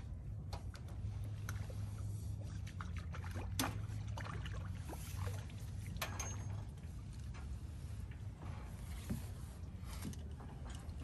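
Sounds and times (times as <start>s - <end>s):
light water splashing: 0.0s - 11.0s
low steady rumble: 0.0s - 11.0s.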